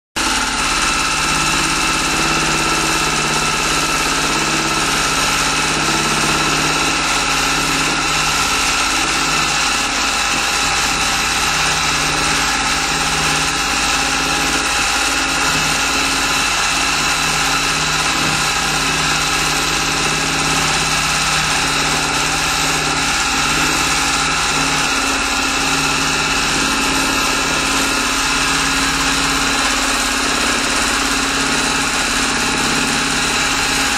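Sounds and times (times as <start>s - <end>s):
sewing machine running: 0.2s - 33.9s.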